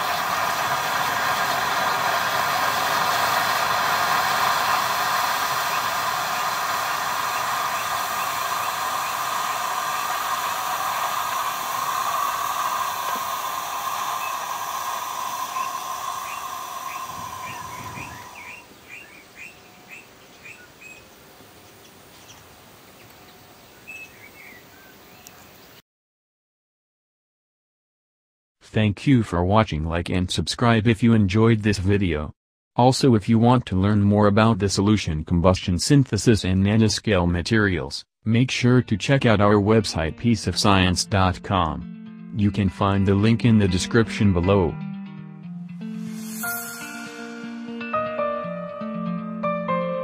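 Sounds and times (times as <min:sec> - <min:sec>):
hiss of gas from burning gel: 0:00.0 - 0:19.0, 0:45.9 - 0:47.4.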